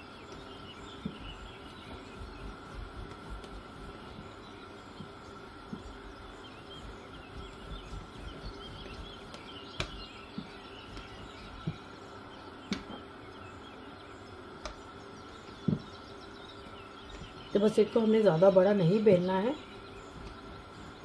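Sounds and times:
bird chirping: 0.0s - 21.0s
rolling pin knocking on dough: 6.7s - 11.9s.

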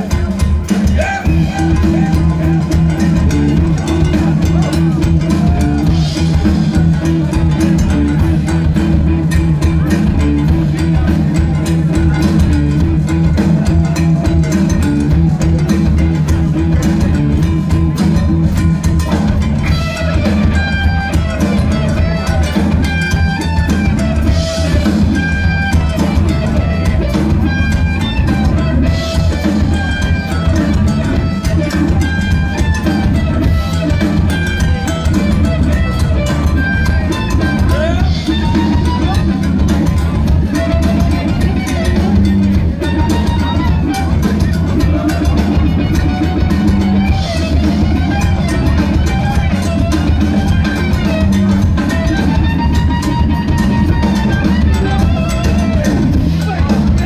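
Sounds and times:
bass guitar: 0.0s - 57.0s
distorted electric guitars: 0.0s - 57.0s
drum kit: 0.0s - 57.0s.

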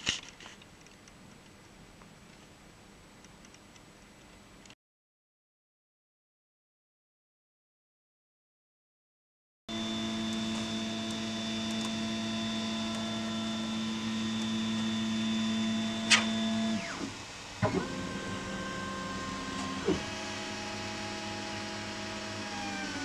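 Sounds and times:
printer motors whining: 9.7s - 23.0s
sharp click: 16.1s - 16.4s.

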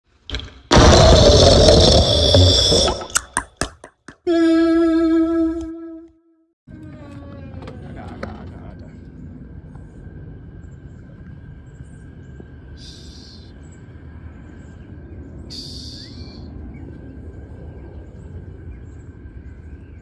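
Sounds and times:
wind rumbling on microphone: 6.7s - 20.0s.

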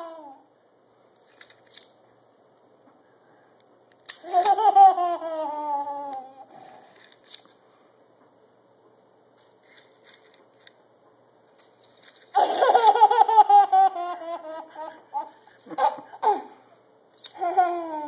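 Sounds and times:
toddler laughing: 12.4s - 16.6s.

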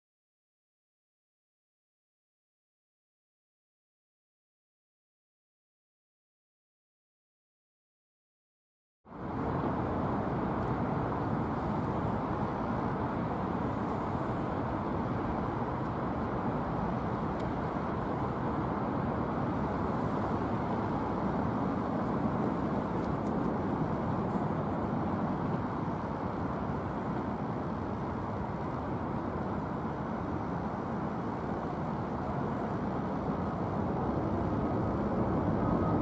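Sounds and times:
distant engine roar: 9.1s - 36.0s.

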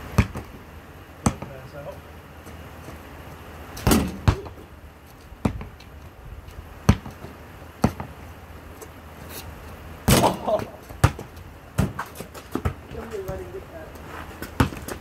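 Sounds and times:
basketball thudding on hard court: 0.2s - 0.5s, 3.8s - 4.6s, 5.4s - 5.7s, 6.9s - 8.1s, 10.1s - 13.4s, 14.4s - 15.0s.

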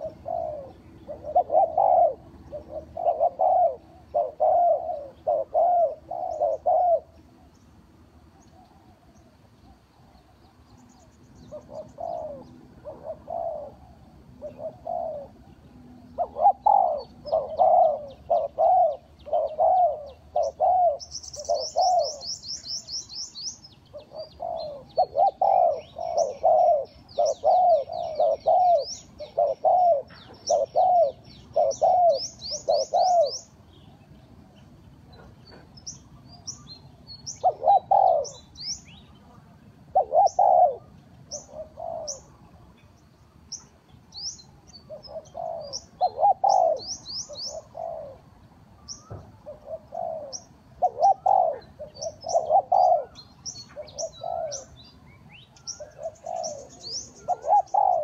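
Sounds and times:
doves cooing: 0.0s - 7.6s, 8.2s - 10.6s, 11.5s - 36.6s, 37.3s - 43.4s, 44.8s - 55.0s, 55.6s - 58.0s
small birds chirping: 0.0s - 58.0s
bird trill: 14.4s - 39.2s, 40.0s - 48.2s, 48.8s - 58.0s.

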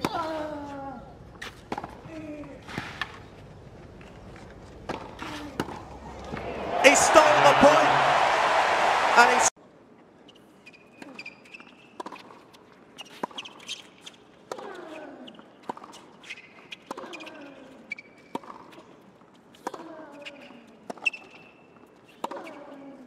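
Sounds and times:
sneakers squeaking on court: 10.3s - 14.2s, 15.4s - 19.0s.

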